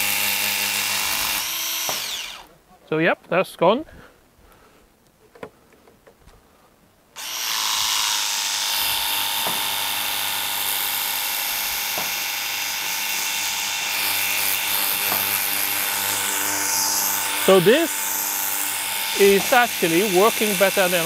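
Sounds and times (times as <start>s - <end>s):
electric pump motor whining: 0.0s - 2.5s, 7.2s - 21.0s.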